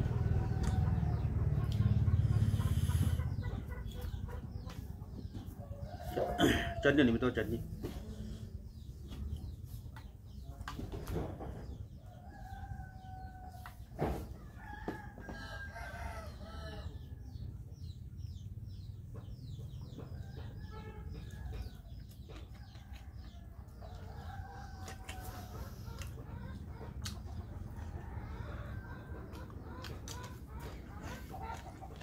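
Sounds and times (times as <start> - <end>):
roosters crowing: 5.5 - 7.6, 12.0 - 17.3.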